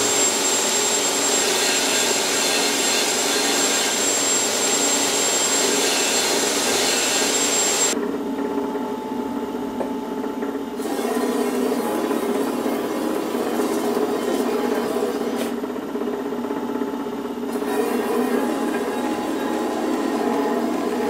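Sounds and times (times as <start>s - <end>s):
belt grinder grinding steel: 0.0s - 8.0s
machine hum: 0.0s - 21.0s.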